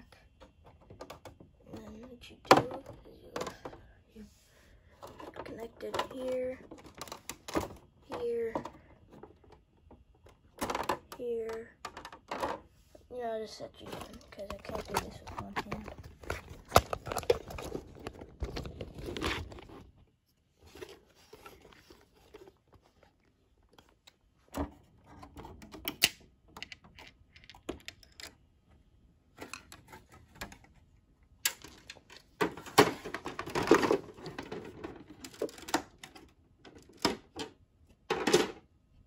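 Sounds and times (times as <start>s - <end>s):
plastic bricks clicking and clattering: 5.0s - 12.7s, 13.8s - 20.0s, 24.6s - 28.4s, 31.4s - 38.7s.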